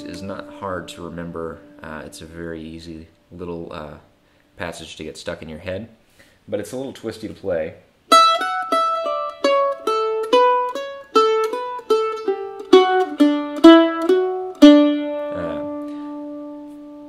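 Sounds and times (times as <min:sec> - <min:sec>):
mandolin picked slowly: 0:00.0 - 0:04.4, 0:08.1 - 0:17.0.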